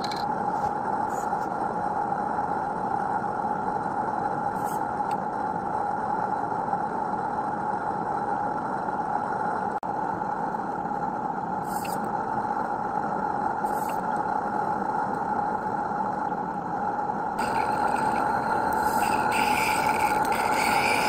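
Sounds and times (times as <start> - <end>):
steam locomotive hissing: 17.4 - 21.0.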